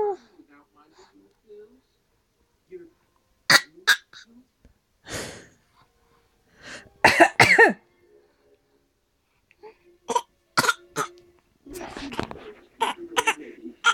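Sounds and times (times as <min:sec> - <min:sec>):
person coughing: 0:07.0 - 0:07.8, 0:10.1 - 0:11.1, 0:12.8 - 0:13.9.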